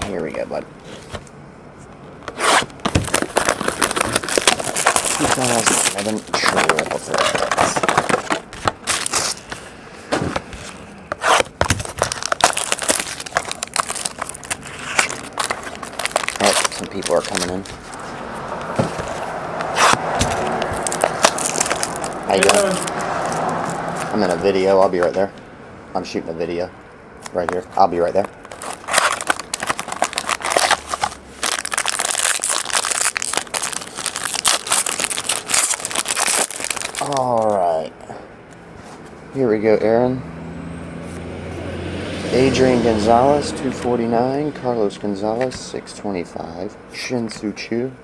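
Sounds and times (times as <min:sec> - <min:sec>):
cardboard box being handled: 0:02.3 - 0:23.5
plastic wrap crinkling: 0:02.8 - 0:09.7, 0:10.6 - 0:24.2, 0:28.1 - 0:37.6.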